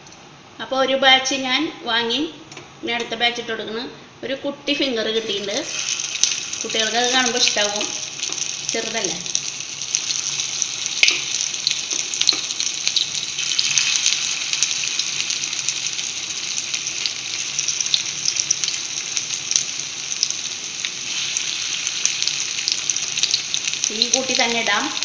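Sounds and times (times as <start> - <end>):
food sizzling in hot oil: 5.2 - 25.0.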